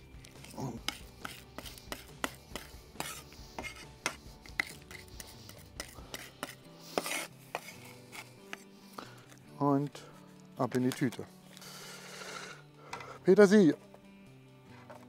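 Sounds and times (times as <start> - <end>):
knife blade scraping board: 0.4 - 8.7
knife chopping on wooden board: 0.8 - 7.7.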